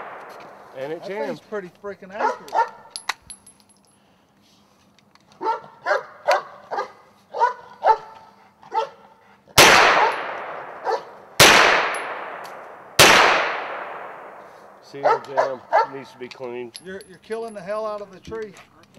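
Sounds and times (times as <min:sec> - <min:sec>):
rifle shots with echo: 0:00.0 - 0:01.3, 0:09.6 - 0:15.5
dog barking: 0:02.2 - 0:02.9, 0:05.4 - 0:09.0, 0:10.8 - 0:11.1, 0:15.0 - 0:16.1.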